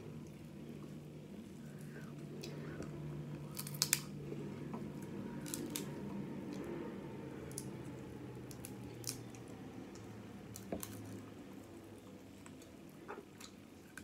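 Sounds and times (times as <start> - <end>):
steady low hum: 0.0 - 14.0
crab legs cracking: 3.5 - 4.2, 5.4 - 5.9.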